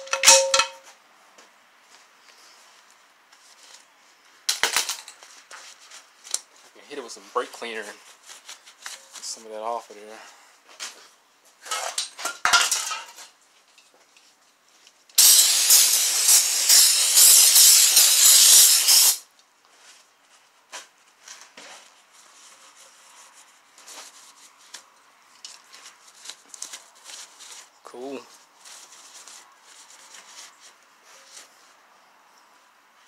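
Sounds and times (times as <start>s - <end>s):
clattering and rustling: 10.7s - 14.5s
aerosol spray hiss: 15.2s - 19.2s
faint rubbing: 21.7s - 31.9s.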